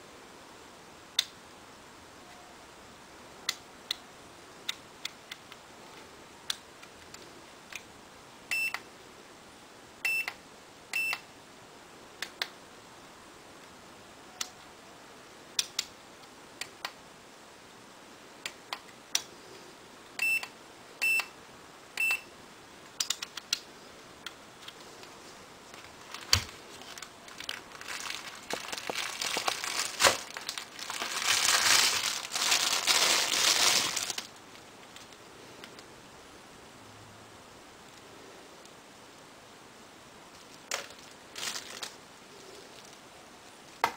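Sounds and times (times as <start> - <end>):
plastic bag crinkling: 25.6 - 35.2, 40.3 - 43.0.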